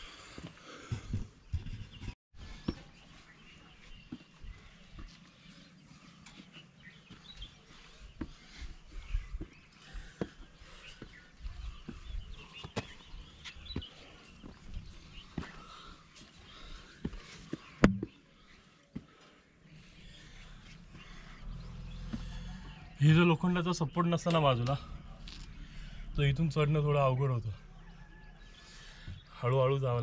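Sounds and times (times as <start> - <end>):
climber's feet and hands on rock: 8.2 - 18.3
low rumble: 20.0 - 23.0, 24.6 - 28.0
faint bird chirps: 27.2 - 29.5.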